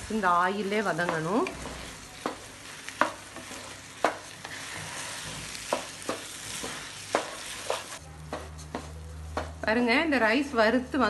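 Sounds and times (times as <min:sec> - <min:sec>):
rice sizzling in oil: 0:00.0 - 0:09.4
wooden spatula scraping grains: 0:01.0 - 0:08.0.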